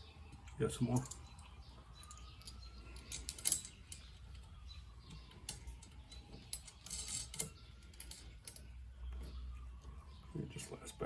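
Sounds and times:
metal nuts and bolts clinking: 0.3s - 4.5s, 5.1s - 8.8s.

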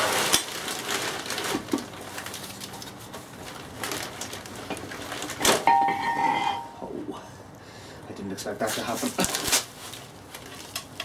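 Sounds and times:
ringing metallic knock: 5.7s - 6.7s.

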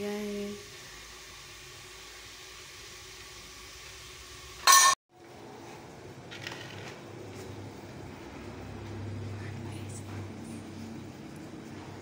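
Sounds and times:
kitchen background: 0.0s - 12.0s
dishes clattering: 4.6s - 5.0s.

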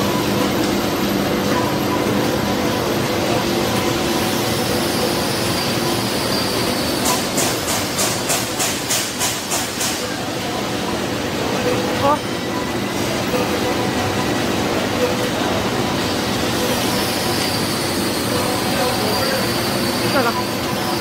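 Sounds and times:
coating pan machine humming: 0.0s - 21.0s.

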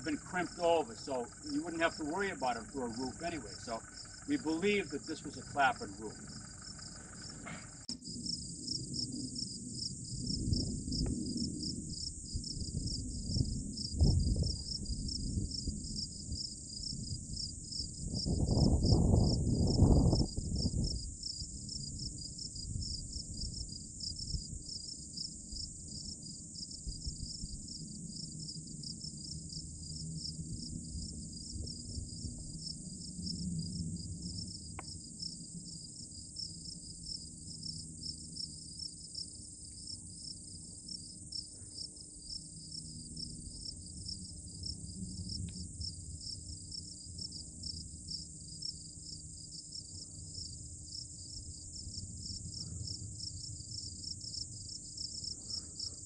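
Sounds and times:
insects trilling: 0.0s - 56.0s
faint ticks: 34.7s - 35.0s, 45.4s - 45.7s.

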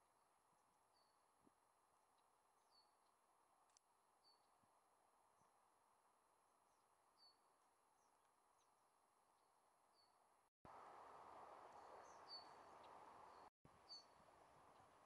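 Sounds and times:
faint outdoor background noise: 0.0s - 15.0s
small birds chirping: 0.5s - 5.7s, 6.4s - 15.0s.

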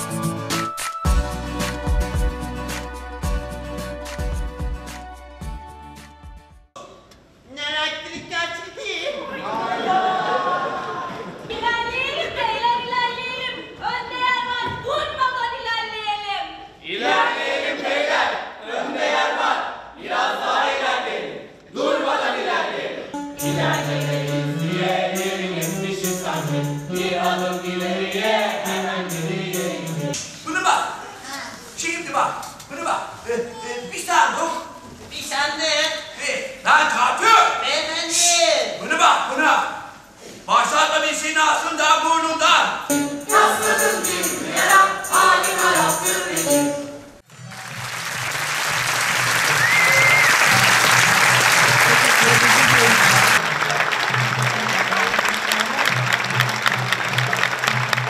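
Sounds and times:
jingling percussion beat: 23.2s - 30.2s, 42.9s - 47.0s
cast singing in chorus: 23.4s - 30.2s, 42.9s - 46.8s
audience applause: 47.3s - 58.0s
crowd whistle: 49.4s - 53.4s.

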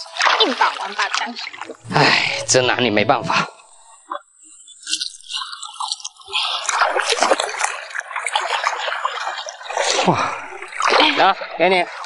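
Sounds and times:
water splashing through basket: 0.0s - 1.9s, 5.0s - 12.0s.

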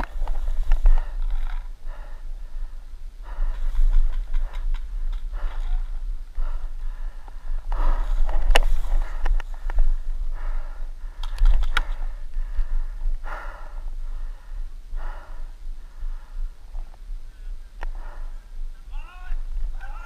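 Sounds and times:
person breathing close to microphone: 0.0s - 18.9s
low wind rumble: 0.0s - 20.0s
sharp clicks: 11.2s - 12.0s.

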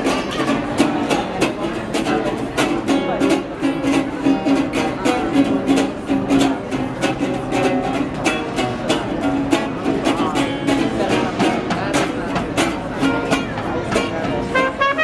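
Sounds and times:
strummed string instruments: 0.0s - 15.0s
held melody notes: 12.7s - 15.0s.

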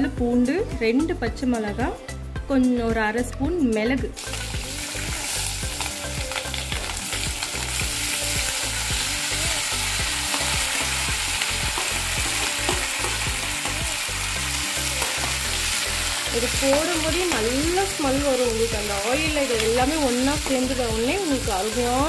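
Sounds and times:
vegetables sizzling in hot oil: 4.2s - 22.0s
spoon clicking and scraping pan: 10.2s - 13.8s, 14.8s - 17.7s.

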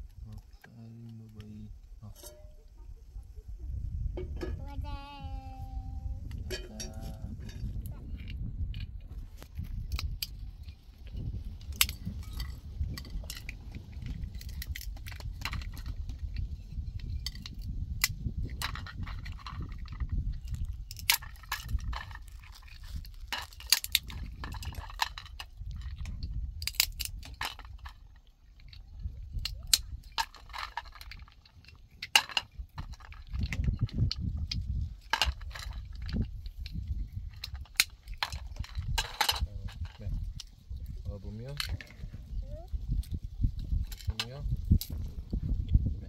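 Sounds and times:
low rumble: 1.5s - 23.4s
hard objects clinking: 6.4s - 8.9s, 9.9s - 40.6s.

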